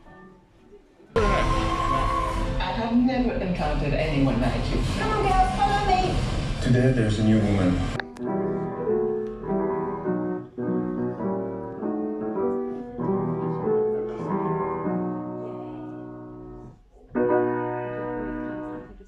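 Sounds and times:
piano playing slow chords: 7.9 - 19.0.

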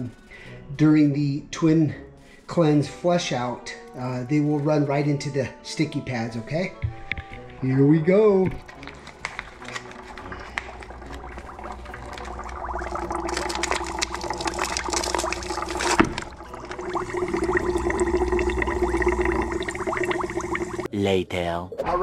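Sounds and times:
water bubbling and fizzing: 8.6 - 20.9
air bubbler hum: 10.1 - 20.9
sharp bubble burst: 10.3 - 20.9.

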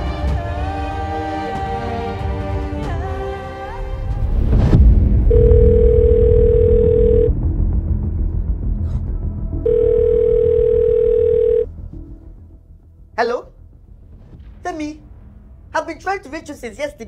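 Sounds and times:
phone ringback beeps: 5.3 - 7.3, 9.7 - 11.7.

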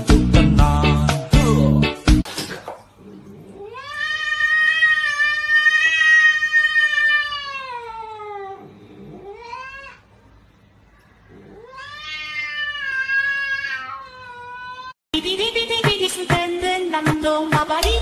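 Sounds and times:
cat yowling: 3.5 - 10.1, 11.3 - 15.0.

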